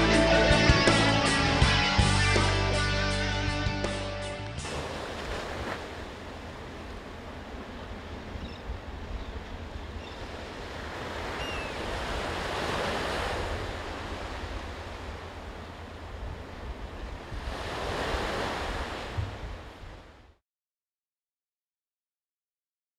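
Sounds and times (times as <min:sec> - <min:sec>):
waves breaking on beach: 0:04.6 - 0:20.4.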